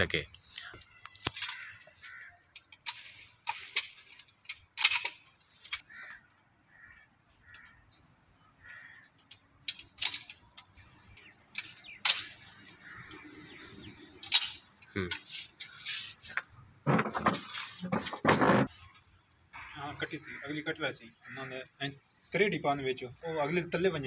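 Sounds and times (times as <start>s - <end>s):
dry leaves and twigs crackling: 0.4s - 16.6s
faint bird calls: 10.8s - 16.4s.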